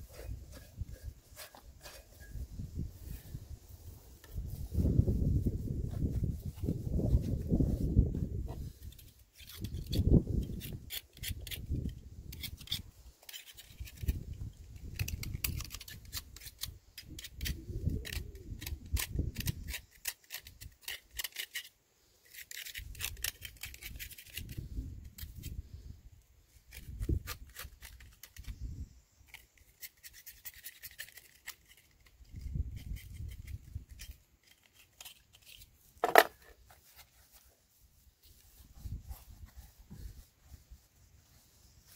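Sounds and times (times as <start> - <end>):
knife scraping metal: 0.0 - 2.5, 8.7 - 14.2, 14.8 - 25.5, 26.7 - 28.5, 29.3 - 37.0
dull knocks of pump handled: 36.0 - 36.6.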